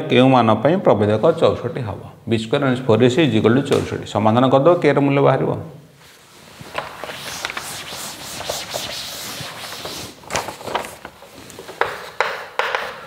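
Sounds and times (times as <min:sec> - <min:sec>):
cloth wiping chalkboard: 0:06.0 - 0:13.0.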